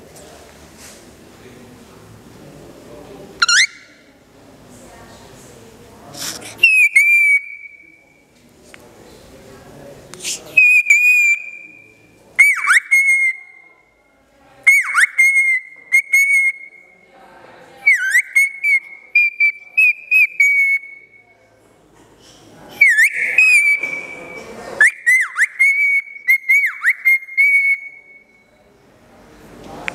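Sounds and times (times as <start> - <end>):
cockatiel whistling: 3.4 - 4.0, 22.8 - 28.2.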